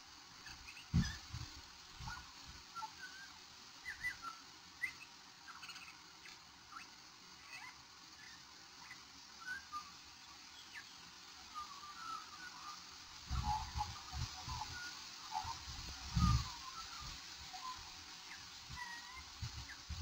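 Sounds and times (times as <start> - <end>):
magpie chirps and whistles: 2.0 - 6.0.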